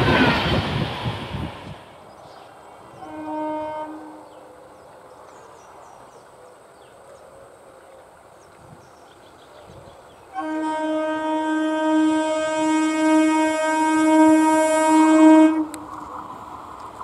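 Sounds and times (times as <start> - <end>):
train horn blasts: 2.9 - 4.4, 10.3 - 15.9.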